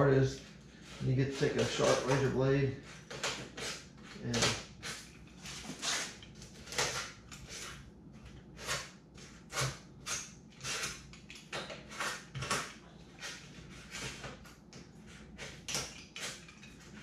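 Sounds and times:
knife blade sawing through foam: 0:00.7 - 0:02.4, 0:03.0 - 0:07.8.

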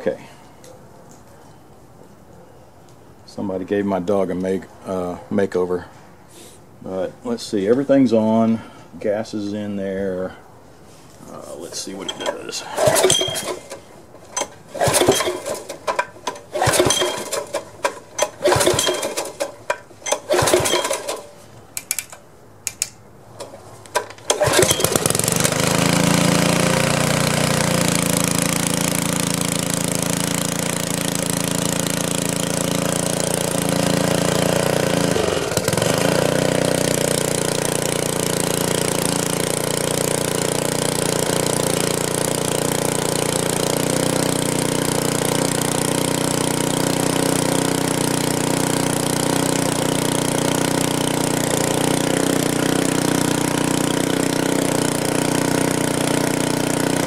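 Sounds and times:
engine being pull-started: 0:11.8 - 0:57.0
engine running steadily: 0:12.1 - 0:22.2, 0:23.4 - 0:57.0.

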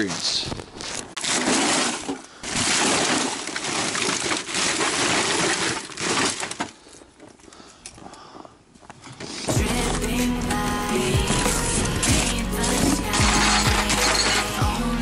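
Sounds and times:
footsteps crunching in snow: 0:00.0 - 0:01.2
plastic garbage bag rustling: 0:00.0 - 0:06.8, 0:09.2 - 0:14.6.

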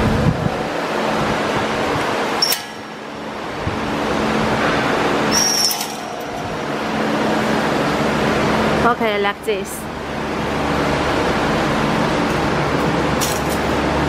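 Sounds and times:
wire mesh machine din: 0:02.3 - 0:08.8
high metallic squeaks: 0:02.4 - 0:02.9, 0:05.2 - 0:08.2.

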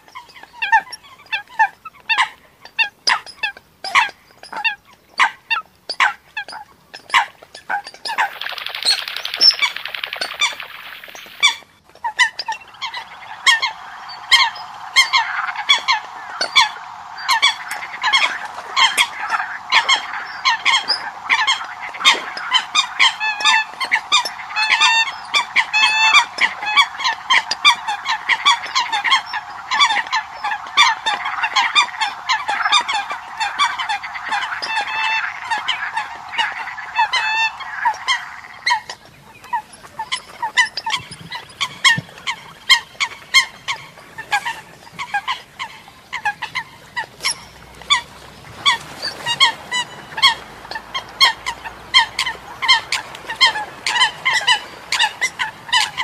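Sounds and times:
coots calling: 0:08.1 - 0:38.9, 0:45.0 - 0:56.0.

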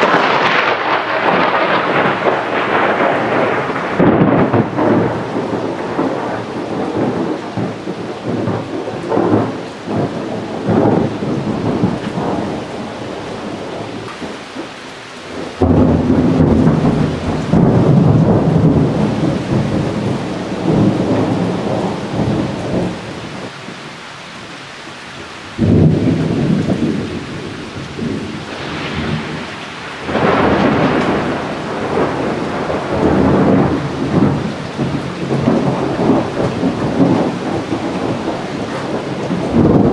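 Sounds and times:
loud thunder crashes: 0:00.0 - 0:14.1, 0:15.3 - 0:23.5, 0:25.6 - 0:39.9
thunder rumbling: 0:00.0 - 0:24.5, 0:25.4 - 0:39.9.

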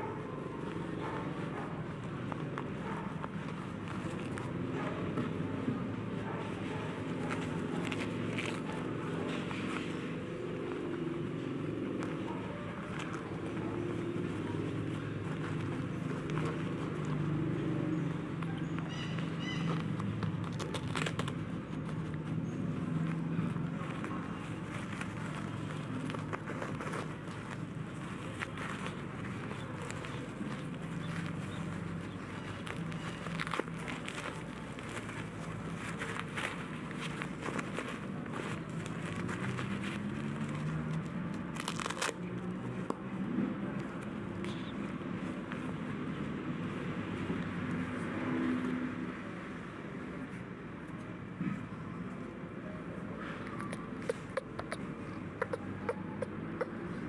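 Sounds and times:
plastic diaper crackling: 0:00.6 - 0:05.6, 0:06.5 - 0:48.9.

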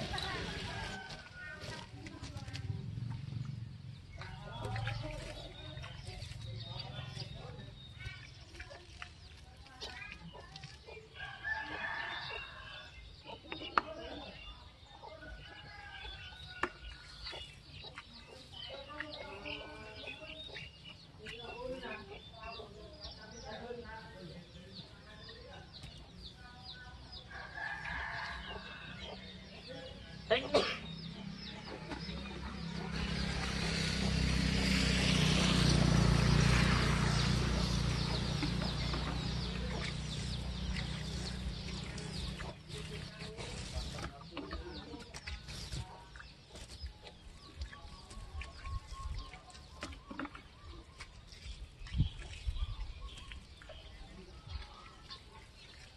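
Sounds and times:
water splashing onto straw: 0:00.0 - 0:12.7, 0:31.8 - 0:55.9
chickens clucking: 0:11.9 - 0:23.8, 0:24.8 - 0:34.6, 0:35.2 - 0:55.9.

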